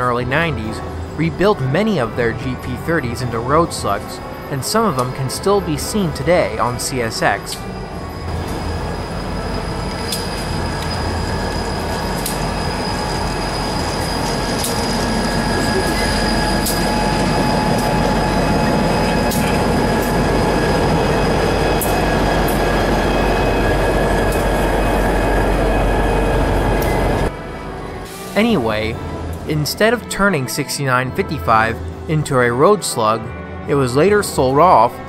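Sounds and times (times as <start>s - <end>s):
freight train rumbling past: 0.0s - 35.0s
high wheel squeal: 3.5s - 27.3s.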